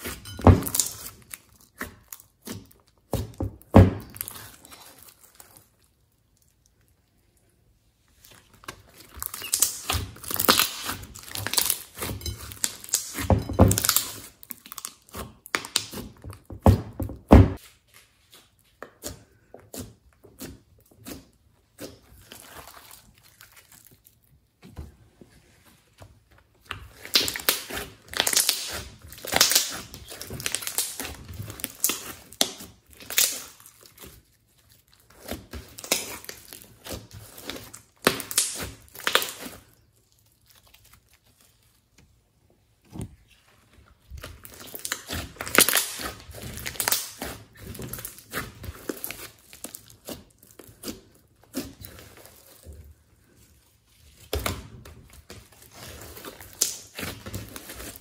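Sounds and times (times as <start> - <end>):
slime crackling and popping: 8.3 - 16.3, 26.6 - 41.9, 44.0 - 52.7, 54.1 - 58.0.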